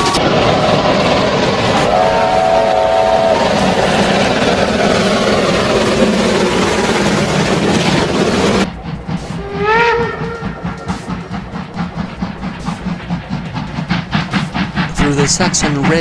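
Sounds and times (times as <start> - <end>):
locomotive exhaust chuffing: 0.0 - 16.0
steam train passing: 0.0 - 16.0
steam locomotive whistle: 1.7 - 4.4, 9.2 - 11.3.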